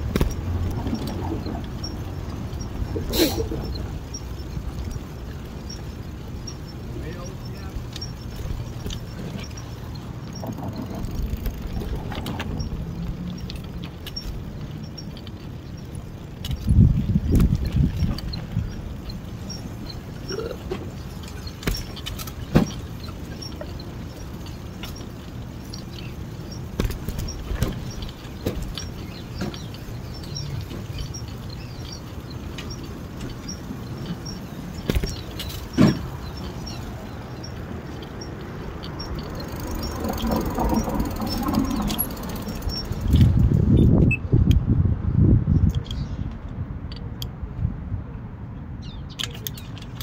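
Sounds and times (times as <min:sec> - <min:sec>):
wheels knocking over joints: 0:00.0 - 0:44.0
bicycle tyres rumbling on concrete: 0:00.0 - 0:46.2
wind on microphone: 0:16.5 - 0:18.9, 0:39.8 - 0:48.2.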